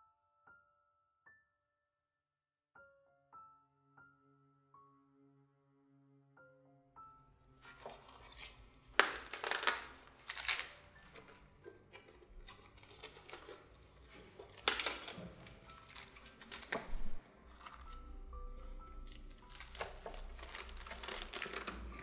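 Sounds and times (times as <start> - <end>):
cabbage leaves snapping: 8.1 - 18.1, 19.0 - 22.0.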